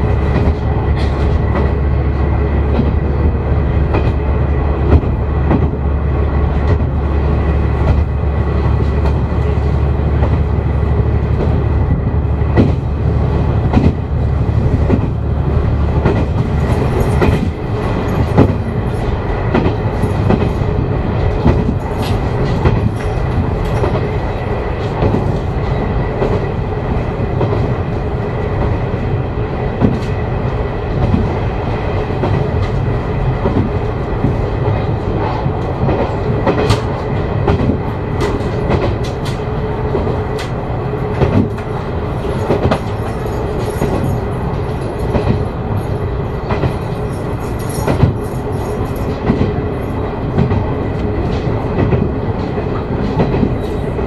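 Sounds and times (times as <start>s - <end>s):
wheel clacks over rail joints: 0.0s - 5.8s, 11.2s - 26.6s, 32.1s - 54.0s
diesel railcar running: 0.0s - 54.0s.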